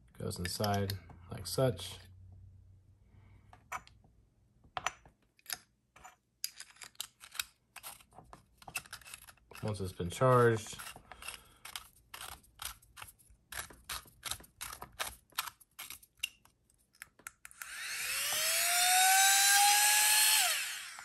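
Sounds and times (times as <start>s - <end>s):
small handling clicks: 4.8s - 9.8s
electric air pump whine: 17.6s - 21.0s.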